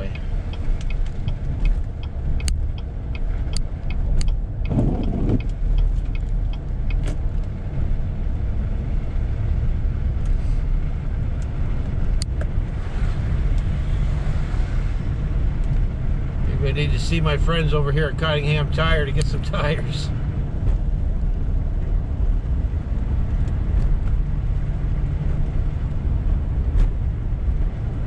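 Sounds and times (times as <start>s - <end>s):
engine and tyre rumble: 0.0s - 28.0s
light ticks: 0.1s - 7.6s, 13.5s - 13.7s.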